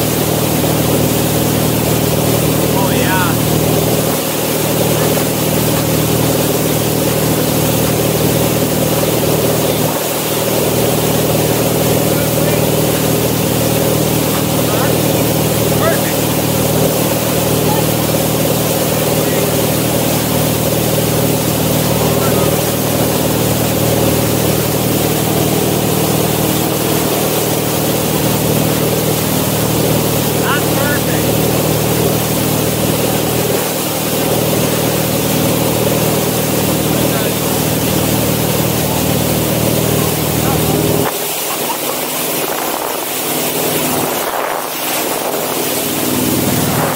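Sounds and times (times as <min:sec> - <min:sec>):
boat engine droning: 0:00.0 - 0:46.9
hiss of churning wake: 0:00.0 - 0:46.9.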